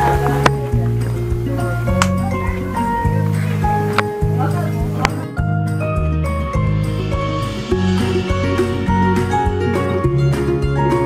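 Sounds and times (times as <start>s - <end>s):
plucked-string tune with beat: 0.0s - 11.0s.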